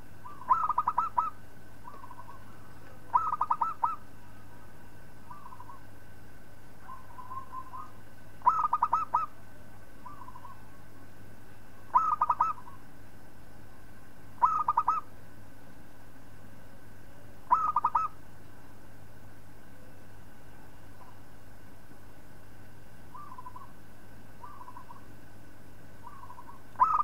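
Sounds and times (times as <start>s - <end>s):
dove cooing: 0.2s - 4.1s, 5.3s - 5.9s, 6.8s - 9.4s, 10.0s - 10.8s, 11.8s - 12.9s, 14.4s - 15.1s, 17.5s - 18.2s, 23.1s - 23.8s, 24.4s - 25.1s, 26.0s - 27.0s.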